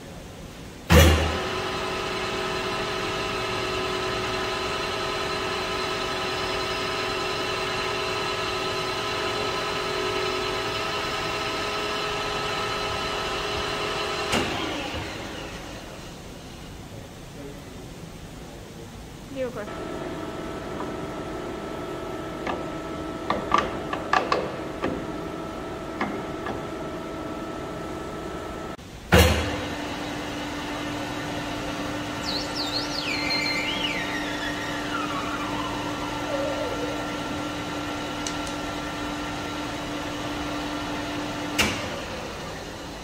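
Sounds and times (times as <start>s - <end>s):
loud metal clunk: 0.9s - 1.5s, 29.1s - 29.6s
metal lathe humming: 29.8s - 43.0s
whistle falling in pitch: 32.2s - 36.7s.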